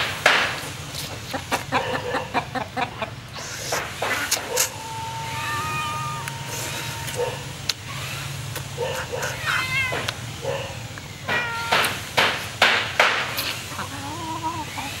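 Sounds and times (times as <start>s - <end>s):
loud harsh animal cries: 4.0s - 12.2s
wavering meow-like animal cries: 4.5s - 10.2s.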